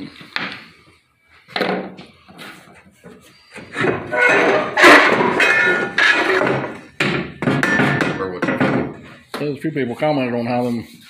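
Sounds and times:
metal tube knocking and scraping: 0:03.6 - 0:09.5
metal clattering with ringing: 0:03.8 - 0:09.0.

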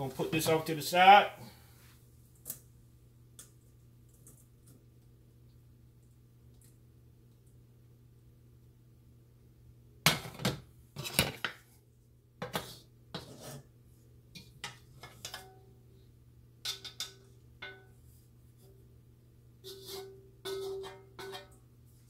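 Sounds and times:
metal utensils clanking on wok: 0:19.6 - 0:21.6.

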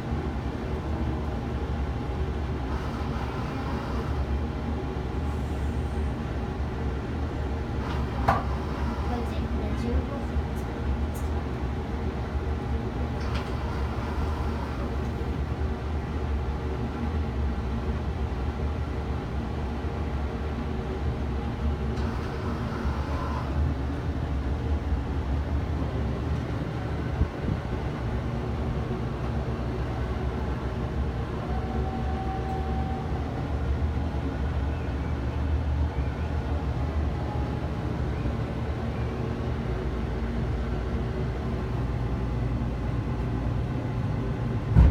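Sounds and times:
low mechanical hum and rumble: 0:00.0 - 0:44.9.

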